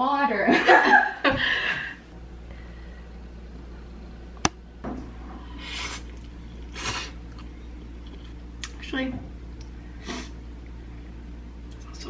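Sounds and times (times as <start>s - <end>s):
low steady hum: 0.0s - 12.0s
person slurping noodles: 5.6s - 7.2s.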